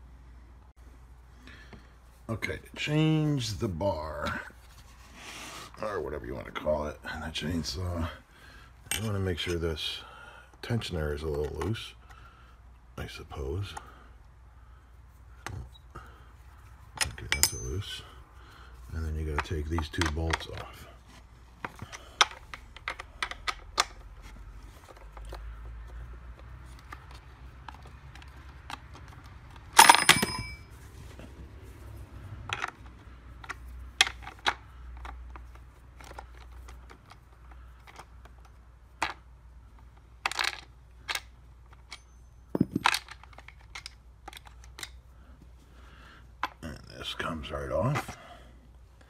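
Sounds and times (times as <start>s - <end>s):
metal clatter ringing: 29.8s - 30.7s.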